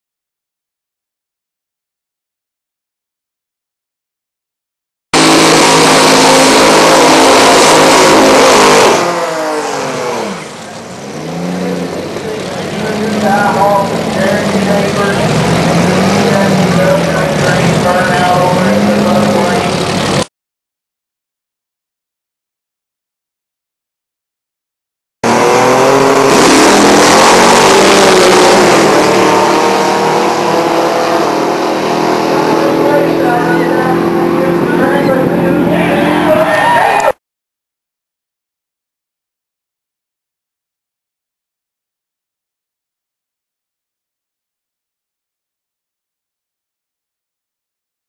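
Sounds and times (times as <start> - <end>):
drag car engine at full throttle: 5.2 - 20.3, 25.2 - 37.2
engine revving: 5.2 - 20.3, 25.2 - 36.6.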